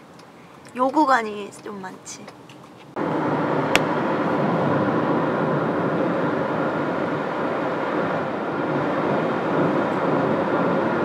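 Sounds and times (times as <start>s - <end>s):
car road and wind noise: 2.3s - 11.0s.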